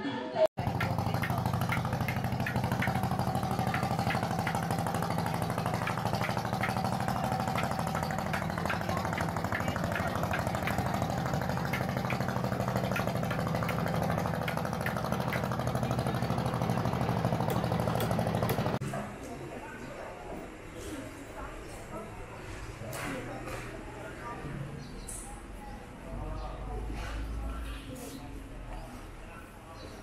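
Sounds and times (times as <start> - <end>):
small engine idling: 0.6 - 18.8.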